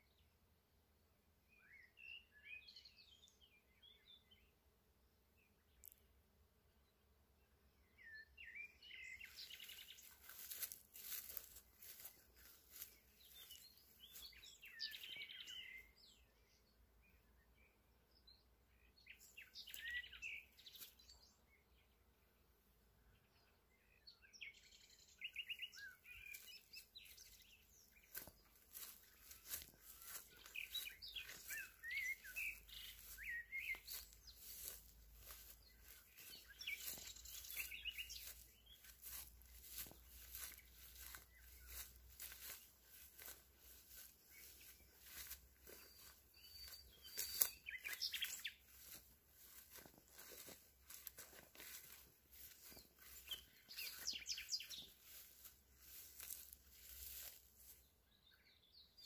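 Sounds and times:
songbirds warbling: 8.7 - 16.2, 24.4 - 57.4.

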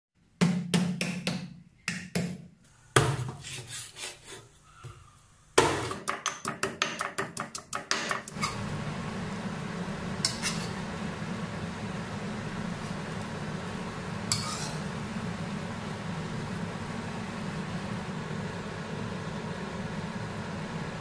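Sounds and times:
pestle pounding in stone mortar: 5.6 - 8.3
curry bubbling and sizzling: 8.3 - 21.0.

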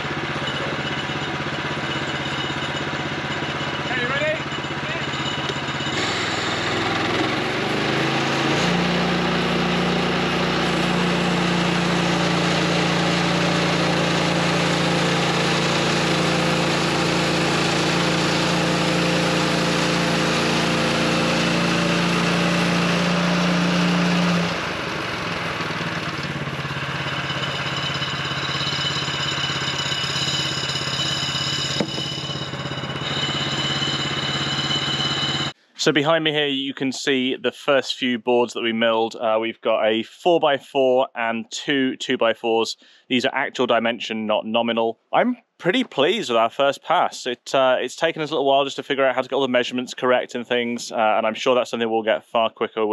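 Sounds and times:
sawmill gas engine running: 0.0 - 36.0.

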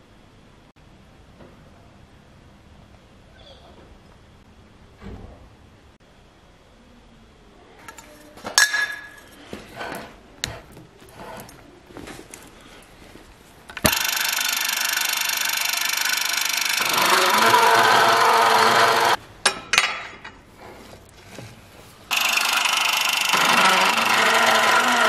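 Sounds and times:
saw motor running: 13.8 - 19.2, 22.1 - 25.0.

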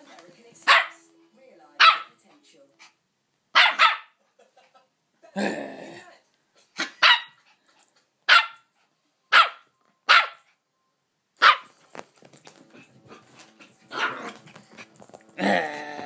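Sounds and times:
puppy barking: 0.6 - 1.0, 1.8 - 2.2, 3.5 - 4.2, 6.8 - 7.4, 8.3 - 8.7, 9.3 - 10.5, 11.4 - 11.8, 13.9 - 14.4.

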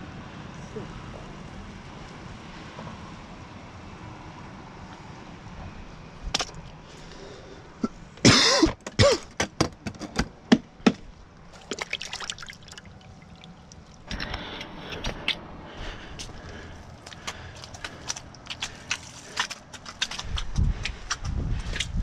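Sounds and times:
sharp drips and plops: 11.4 - 14.4, 17.0 - 20.4
water splashing in a bucket: 11.5 - 14.4.

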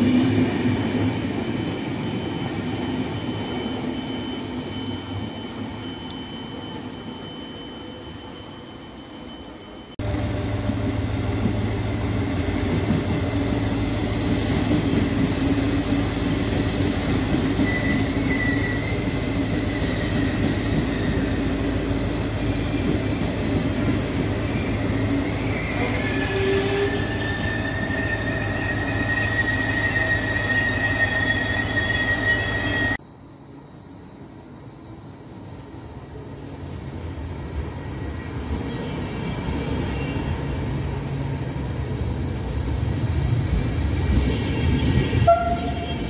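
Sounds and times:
train coaches rumbling past: 0.0 - 33.0, 33.8 - 46.0
high metallic squeal: 14.1 - 21.8, 24.5 - 33.0.

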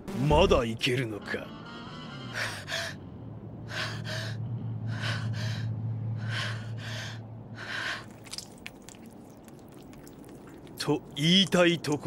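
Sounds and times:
woman panting heavily: 3.7 - 8.1.

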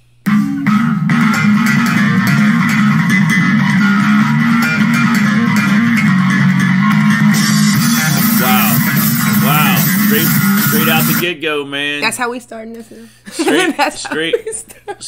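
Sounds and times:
drums: 0.0 - 11.2
electric bass guitar riff: 0.2 - 11.3.

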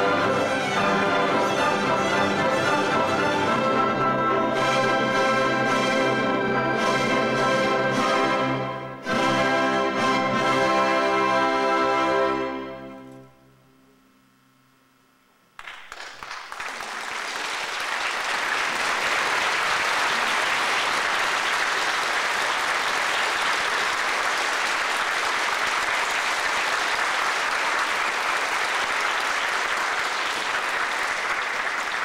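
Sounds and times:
audience applause: 15.6 - 32.0.

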